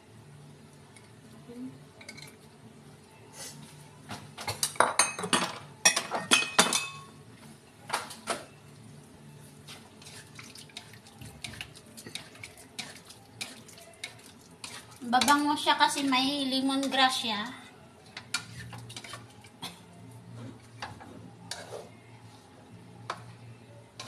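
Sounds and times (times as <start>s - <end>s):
spatula scraping steel wok: 21.4s - 22.0s.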